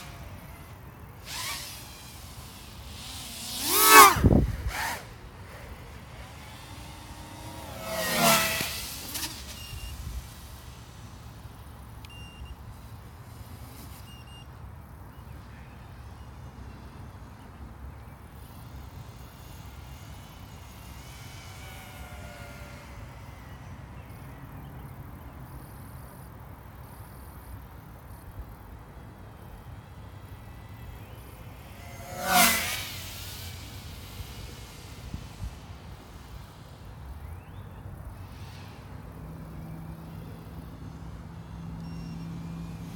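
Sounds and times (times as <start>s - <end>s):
quadcopter motors whining: 0.0s - 42.9s.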